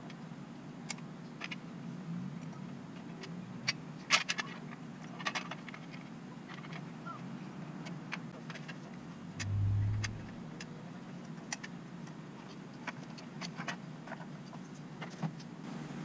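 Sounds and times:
background traffic hum: 0.0 - 16.0
low rumble: 9.4 - 10.5.

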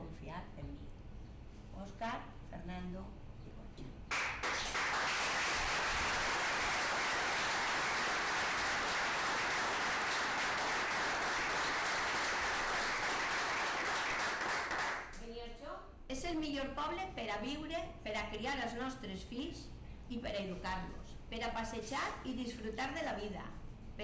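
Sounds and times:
people applauding: 4.1 - 15.2.

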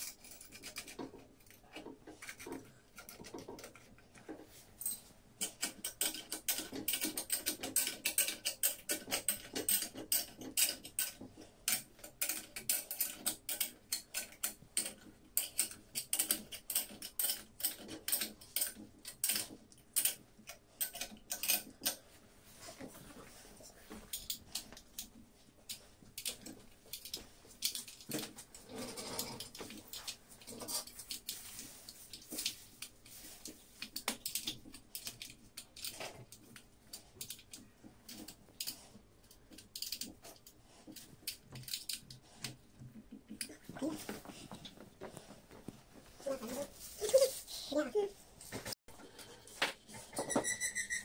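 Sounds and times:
spanners clicking on metal fittings: 4.8 - 22.0.

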